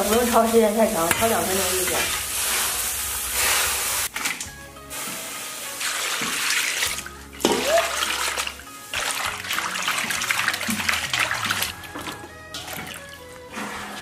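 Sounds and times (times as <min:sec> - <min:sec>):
background music: 0:00.0 - 0:14.0
water splashing in a basin: 0:05.8 - 0:13.2.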